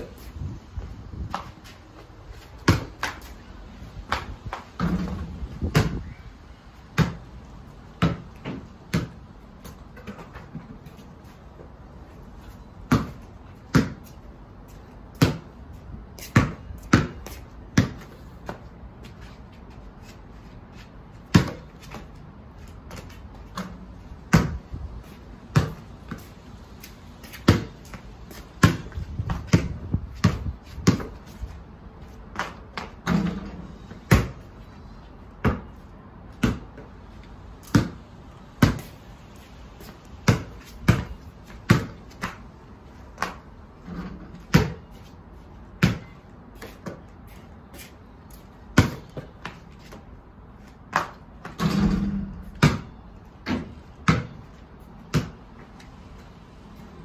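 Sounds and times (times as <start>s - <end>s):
basketball bouncing on paving: 1.1s - 3.5s, 4.1s - 6.2s, 6.8s - 11.0s, 12.8s - 19.2s, 21.1s - 34.5s, 35.4s - 36.9s, 37.6s - 39.0s, 39.8s - 45.1s, 45.7s - 47.1s, 48.4s - 50.1s, 50.7s - 55.7s
basketball striking hoop: 51.5s - 54.4s.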